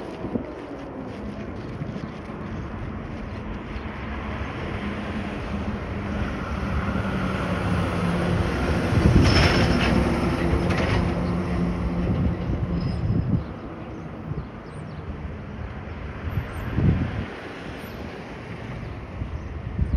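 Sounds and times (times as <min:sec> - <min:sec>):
vehicle engine humming: 0:00.0 - 0:12.8.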